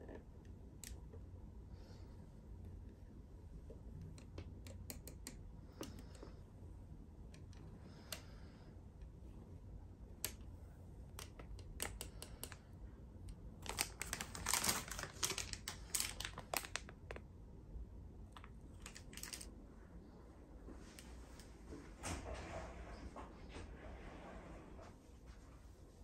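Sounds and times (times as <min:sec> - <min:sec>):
light clicks and taps: 0:03.6 - 0:06.4, 0:10.2 - 0:13.9.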